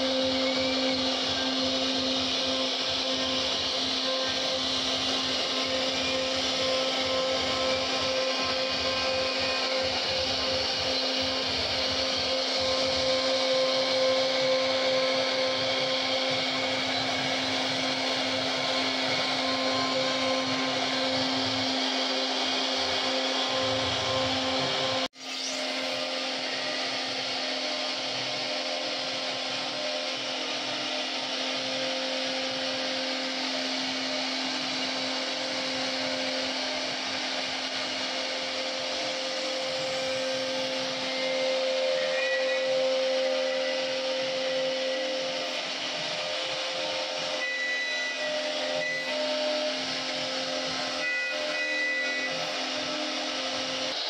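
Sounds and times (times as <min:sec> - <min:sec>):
bit carving wood: 0:00.0 - 0:25.6
cnc router spindle whine: 0:00.0 - 0:54.0
hiss of bit cutting wood: 0:00.0 - 0:54.0.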